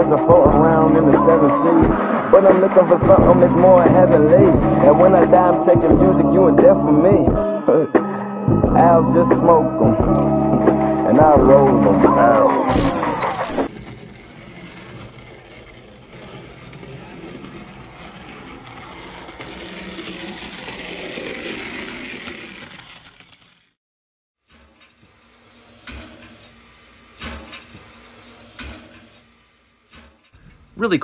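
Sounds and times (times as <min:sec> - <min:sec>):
model locomotive whirring and rattling: 0:12.7 - 0:23.8, 0:24.4 - 0:31.0.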